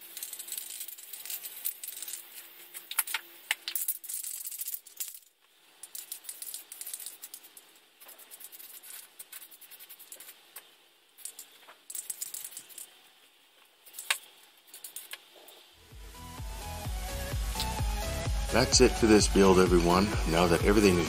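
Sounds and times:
spray paint hissing: 0.0 - 5.0, 5.8 - 13.0, 13.8 - 18.8
spray can ball rattling: 0.0 - 15.6.

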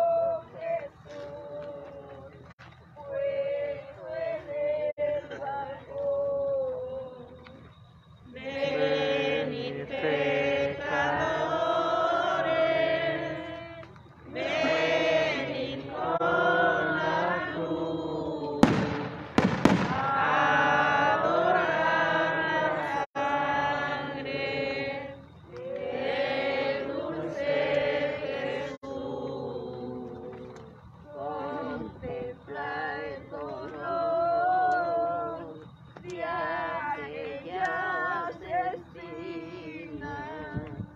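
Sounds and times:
group singing a hymn: 0.0 - 40.9
firecracker bangs: 18.6 - 20.4.

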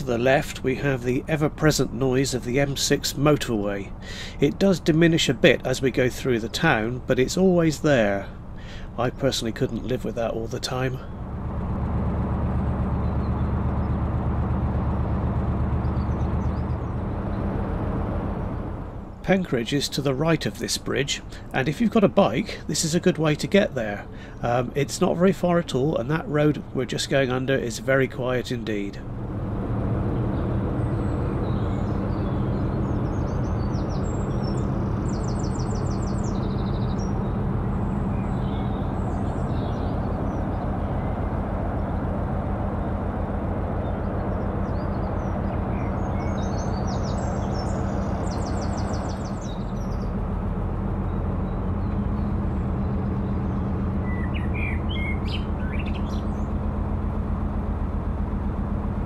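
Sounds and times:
birds chirping: 0.0 - 59.0
diesel boat engine chugging: 0.0 - 59.0.

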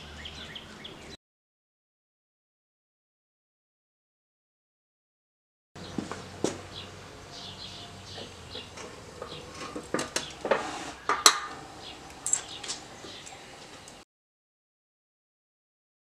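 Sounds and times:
steel parts clinking and clanking: 8.1 - 14.0.

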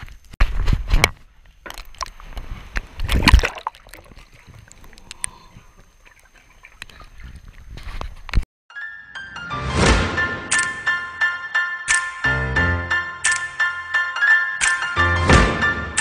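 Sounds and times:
water splashing and sloshing: 1.4 - 8.4.

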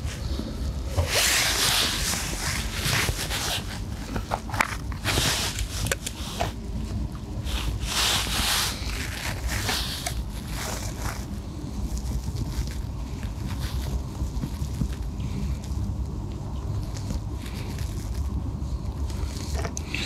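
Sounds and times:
rustling and scraping handling noise: 0.0 - 20.0.

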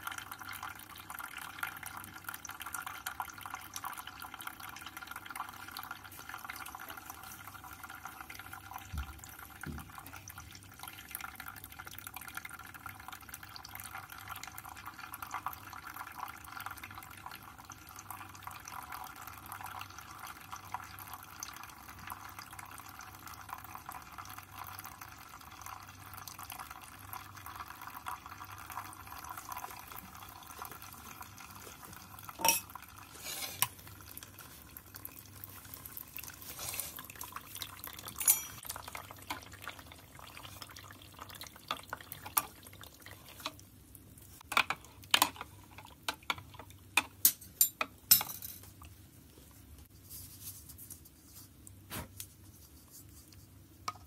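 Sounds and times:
water trickling onto coffee grounds: 0.0 - 47.0, 48.7 - 54.0
sharp clicks and clinks: 38.1 - 38.6.

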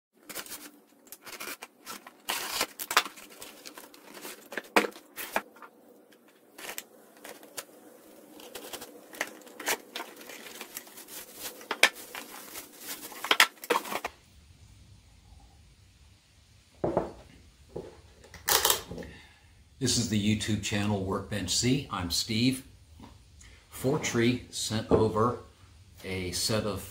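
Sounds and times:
cardboard and tape tearing: 0.2 - 5.7, 6.3 - 14.1
plastic bags crinkling: 0.2 - 14.1.

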